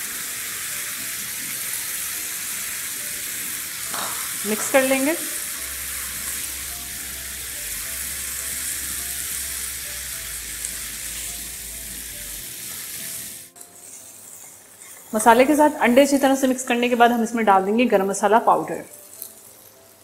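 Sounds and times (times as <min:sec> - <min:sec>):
food sizzling in frying pan: 0:00.0 - 0:20.0
spatula stirring: 0:13.0 - 0:15.8.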